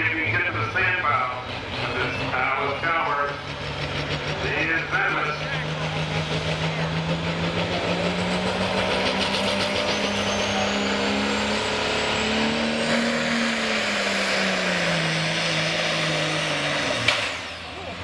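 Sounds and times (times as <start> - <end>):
diesel tractor engine running: 0.0 - 18.0.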